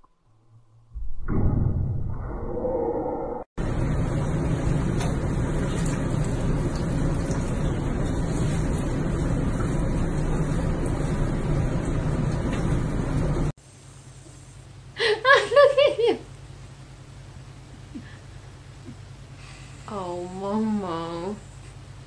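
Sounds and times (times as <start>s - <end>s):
bathwater churning in a tub: 3.6s - 13.5s.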